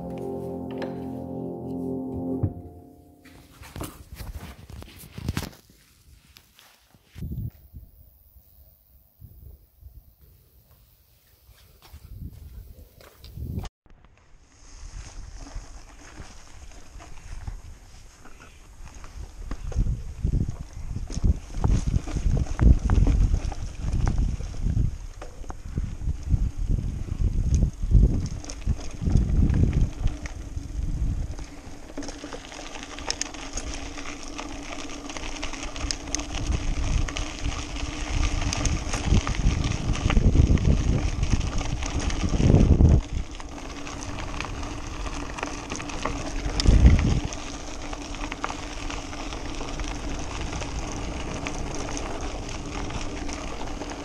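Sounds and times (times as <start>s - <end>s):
bike tyre noise on dirt: 3.1s - 54.0s
bike rattling and clicking: 14.8s - 54.0s
wind buffeting microphone: 18.7s - 32.0s, 35.4s - 54.0s.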